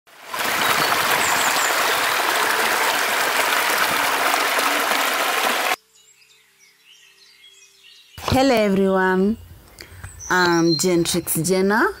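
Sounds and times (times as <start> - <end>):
river water rushing over rocks: 0.1 - 5.8.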